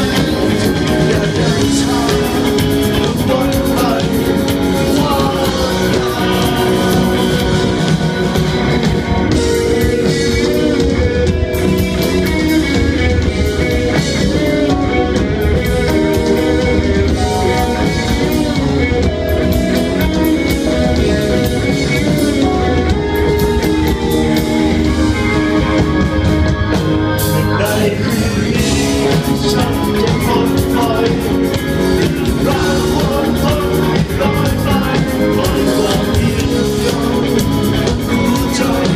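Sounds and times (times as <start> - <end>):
man singing through pa: 0.0 - 8.7, 27.5 - 38.9
bass guitar: 0.0 - 38.9
drums: 0.0 - 38.9
electric guitar: 0.0 - 38.9.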